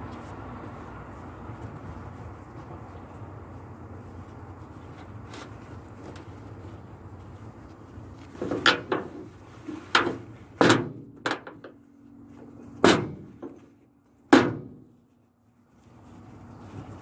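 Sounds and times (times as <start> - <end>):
sharp knocks and bangs: 12.8 - 13.6, 14.3 - 14.9.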